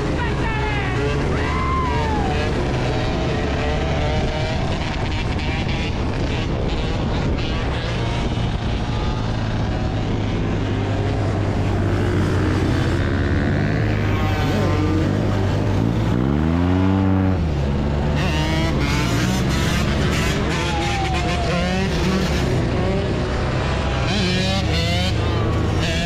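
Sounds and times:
motorbike engines revving: 0:00.0 - 0:26.0.

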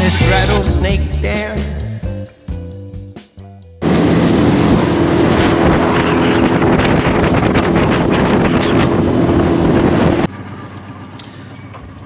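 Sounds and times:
wind buffeting microphone: 0:03.8 - 0:10.3
outboard motor running: 0:03.8 - 0:12.0.

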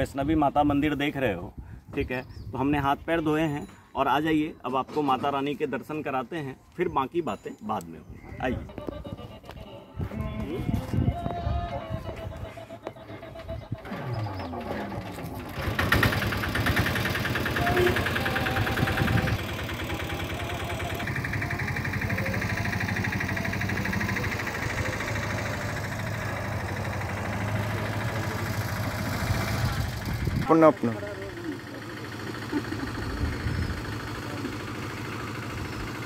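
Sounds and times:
auto-rickshaw engines running: 0:12.0 - 0:36.0.

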